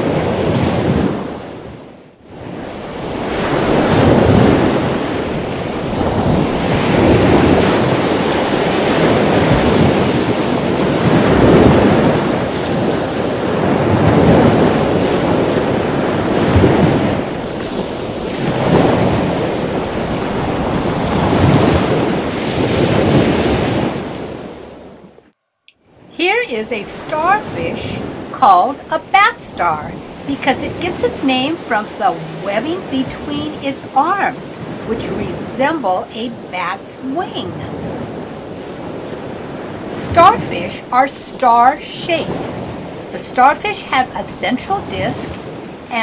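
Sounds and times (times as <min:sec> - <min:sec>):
ocean waves surging: 0:00.0 - 0:25.3, 0:25.9 - 0:46.0.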